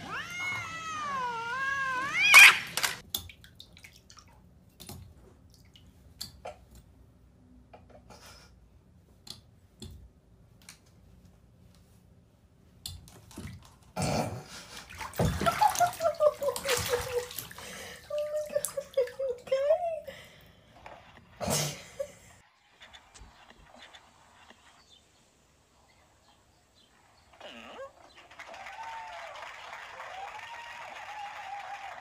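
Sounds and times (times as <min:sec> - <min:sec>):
cat meowing: 0:00.0 - 0:03.0
water splashing in bathtub: 0:00.0 - 0:06.8, 0:12.9 - 0:19.9.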